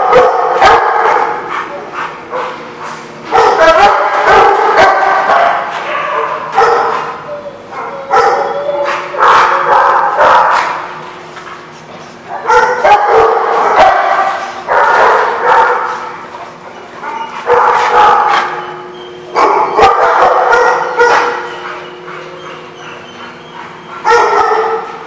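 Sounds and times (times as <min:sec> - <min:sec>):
dogs barking and yipping: 0:00.0 - 0:11.0, 0:11.6 - 0:25.0.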